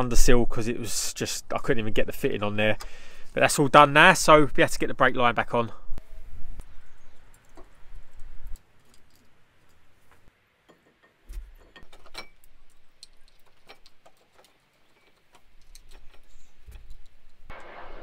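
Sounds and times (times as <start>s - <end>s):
metallic clicks and clinks: 7.2s - 9.9s, 10.7s - 17.5s.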